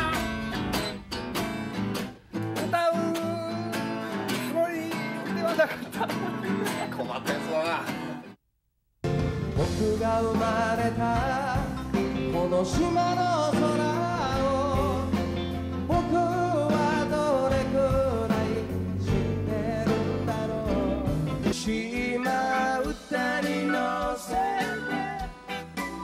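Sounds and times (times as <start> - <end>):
live band playing: 0.0 - 2.7, 9.1 - 26.0
man singing: 2.6 - 5.7, 9.6 - 25.5.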